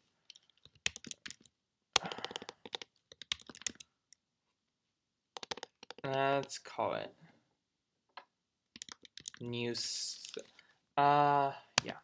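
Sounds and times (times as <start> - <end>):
computer keyboard typing: 0.3 - 3.9, 5.4 - 6.6, 8.8 - 9.4.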